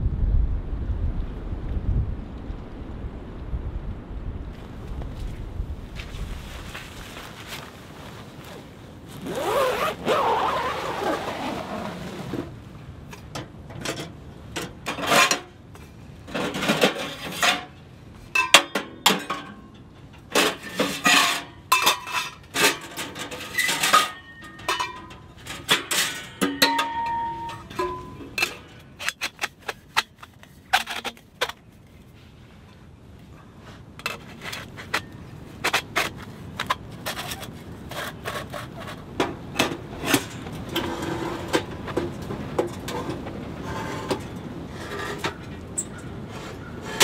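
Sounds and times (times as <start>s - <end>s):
rustling: 4.6s - 12.7s
metal clinks and scrapes: 18.4s - 31.6s.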